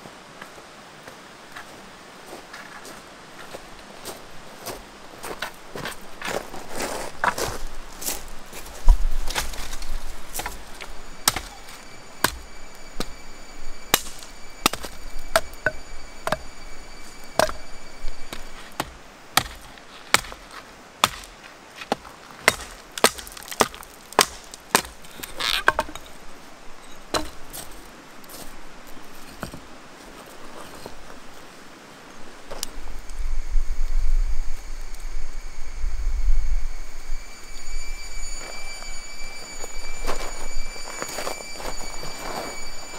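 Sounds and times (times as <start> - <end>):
hatchet chopping wood: 18.8 - 25.0.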